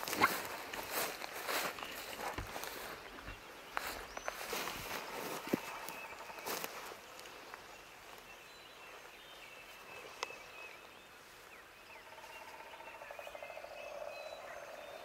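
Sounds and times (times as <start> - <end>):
rustle: 0.0 - 15.0
wild birds chirping: 0.0 - 15.0.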